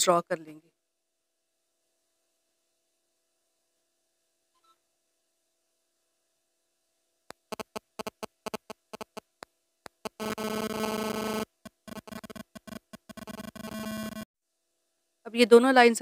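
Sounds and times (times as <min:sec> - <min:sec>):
pulsing electronic buzz: 0:07.5 - 0:09.2, 0:10.0 - 0:14.3.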